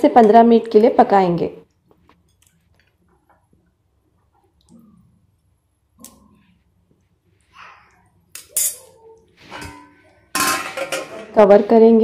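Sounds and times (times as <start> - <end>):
utensils clinking on a metal pan: 9.5 - 11.5.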